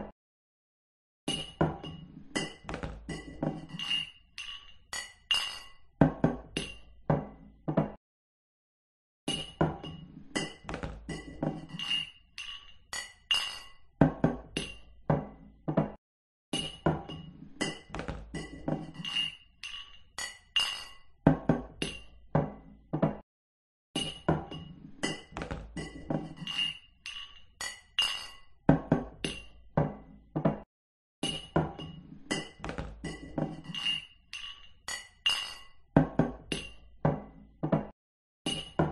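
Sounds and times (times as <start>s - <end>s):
glasses clinking: 1.3s - 5.8s, 9.3s - 13.8s, 16.6s - 21.1s, 24.0s - 28.5s, 31.2s - 35.8s.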